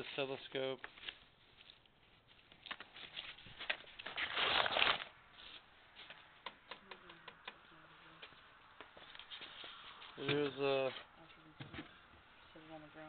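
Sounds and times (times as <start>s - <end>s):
paper rustling: 0.8s - 6.4s.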